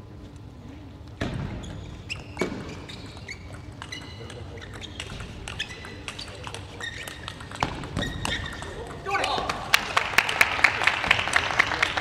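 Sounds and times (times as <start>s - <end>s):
shoes squeaking on floor: 1.2s - 9.4s
ping pong ball clicking: 3.4s - 9.0s.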